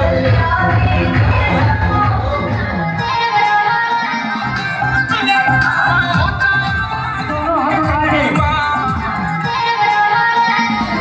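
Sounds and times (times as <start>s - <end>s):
song over a steady beat: 0.0s - 11.0s.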